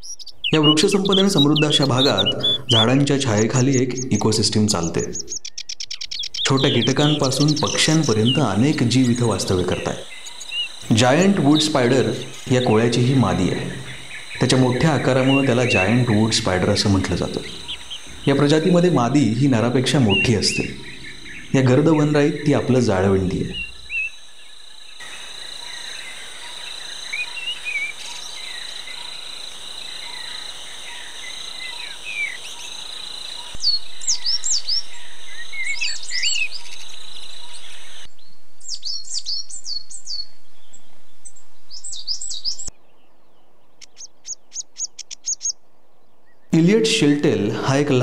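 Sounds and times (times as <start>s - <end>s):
birds chirping and calling: 0.0s - 48.0s
high insect drone: 6.1s - 42.7s.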